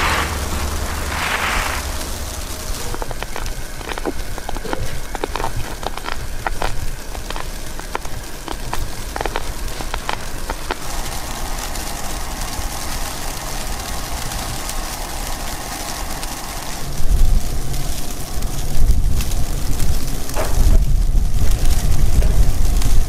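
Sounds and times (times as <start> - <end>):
strong wind: 0.0 - 10.8, 16.8 - 23.0
wind gusts buffeting microphone: 0.0 - 11.3, 16.8 - 23.0
ticks of driven snow: 0.0 - 23.0.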